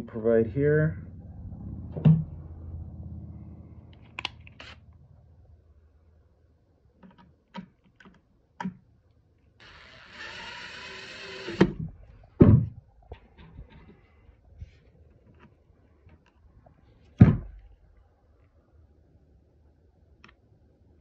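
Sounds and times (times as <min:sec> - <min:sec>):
heavy thumps: 0:01.5 - 0:02.5, 0:11.6 - 0:12.9, 0:17.2 - 0:17.6
cordless drill driving screw: 0:04.2 - 0:04.8, 0:09.6 - 0:11.8.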